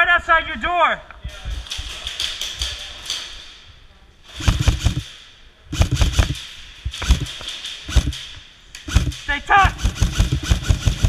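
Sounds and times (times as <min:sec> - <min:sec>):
airsoft guns firing: 0:04.4 - 0:11.0.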